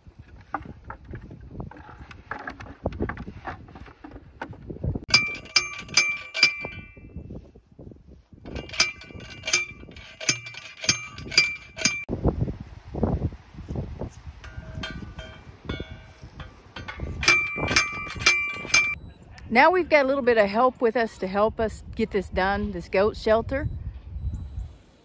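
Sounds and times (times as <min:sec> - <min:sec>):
post driver clanging on metal post: 0:05.1 - 0:07.2, 0:08.5 - 0:12.1, 0:14.4 - 0:19.0.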